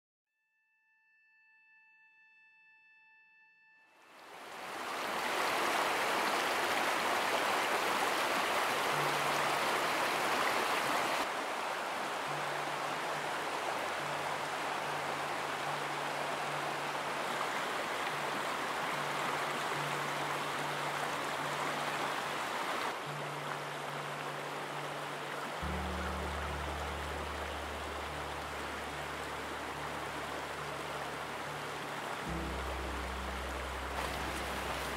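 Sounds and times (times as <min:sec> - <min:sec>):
creek water rushing over rocks: 0:04.3 - 0:34.9.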